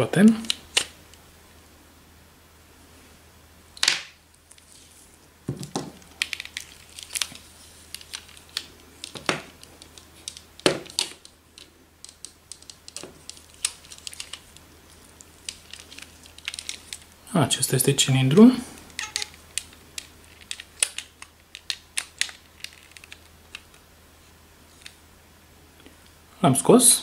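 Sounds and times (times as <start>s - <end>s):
plastic parts clicking and knocking: 5.5s - 14.5s, 18.9s - 23.8s.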